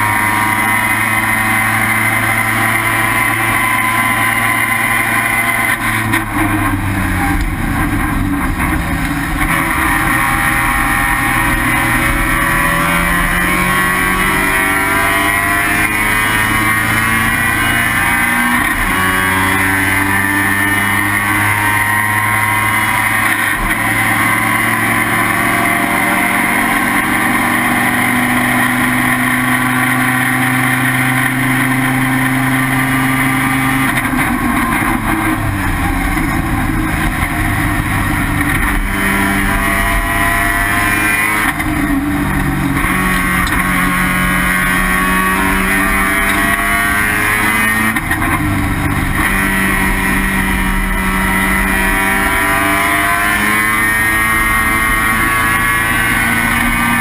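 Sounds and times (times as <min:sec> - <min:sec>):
rotary race engine running hard: 0:00.0 - 0:57.0.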